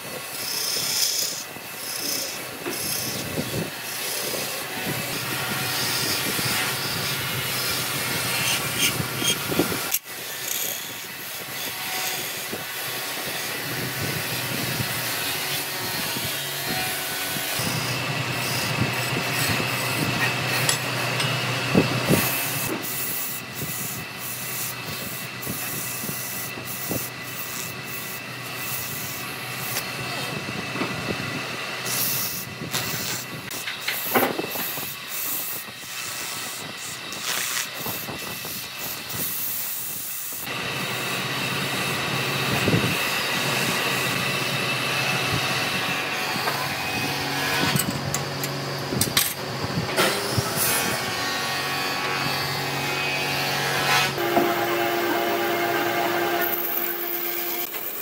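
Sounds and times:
abrasive sanding hiss: 0.0 - 16.4, 22.0 - 29.8, 31.8 - 40.5
motor whine: 0.0 - 58.0
machine hum: 40.5 - 58.0.

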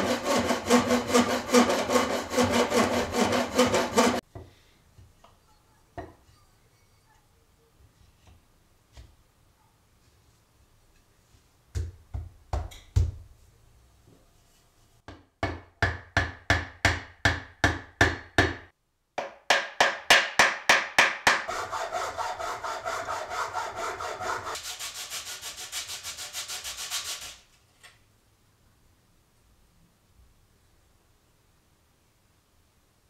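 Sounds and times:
hacksaw sawing wood: 0.0 - 4.2, 21.3 - 27.4.

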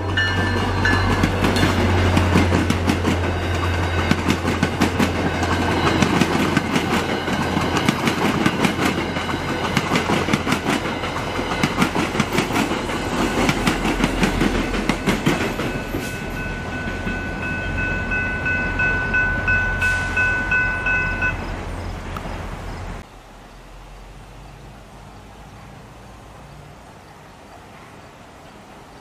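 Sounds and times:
train wheels clattering over rails: 0.0 - 21.4
crossing bell ringing: 0.0 - 21.8
faint outdoor background: 0.0 - 29.0.

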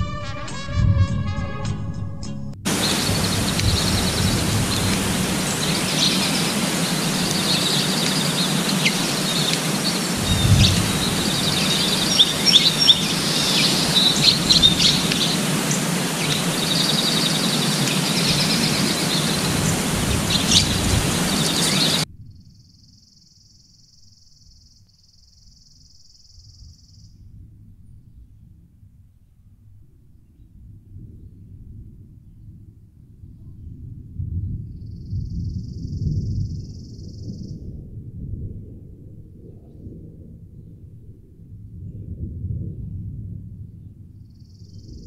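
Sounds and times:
steady outdoor hiss: 2.6 - 27.2
sharp bird chips: 2.7 - 22.0
wild birds chirping and trilling: 2.7 - 22.1.

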